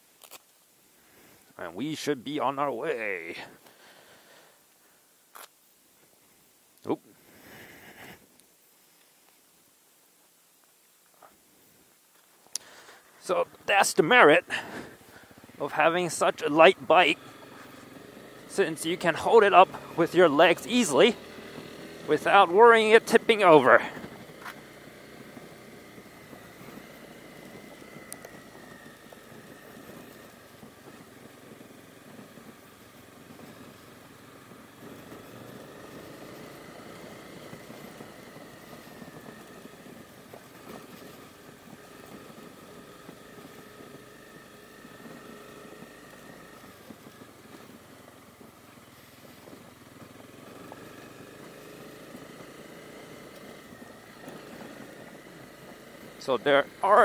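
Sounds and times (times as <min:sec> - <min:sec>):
gravel crackling under tyres: 0:00.0 - 0:57.0
motorcycle engine running: 0:12.6 - 0:57.0.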